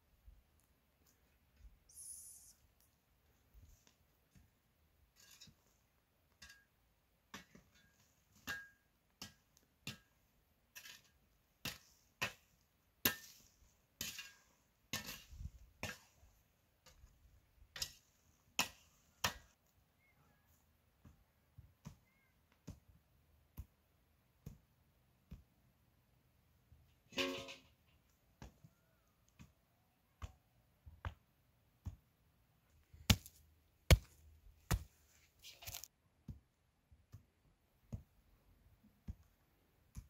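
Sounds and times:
shovel scraping stony soil: 10.7 - 16.3, 33.1 - 35.9
stones knocking: 33.0 - 34.9.

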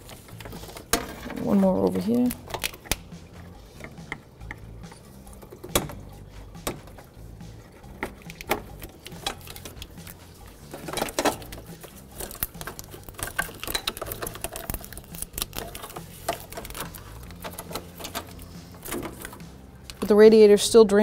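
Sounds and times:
plastic clips clicking: 2.2 - 3.1.

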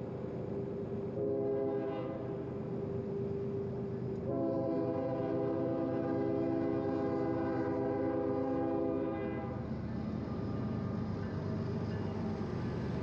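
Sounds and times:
train rumble: 0.0 - 13.0
locomotive air horn blast: 1.2 - 2.2, 4.3 - 9.6.

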